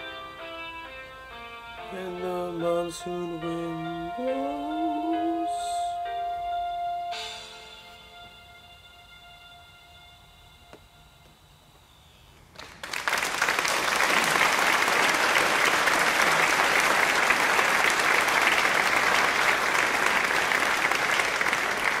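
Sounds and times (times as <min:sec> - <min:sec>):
faint music: 0:00.0 - 0:12.5
applause: 0:12.5 - 0:22.0.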